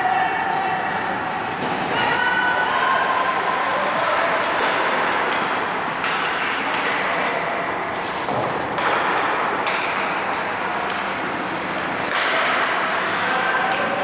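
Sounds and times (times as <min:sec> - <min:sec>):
hockey sticks and puck knocking: 0:04.4 - 0:07.4, 0:08.0 - 0:13.0.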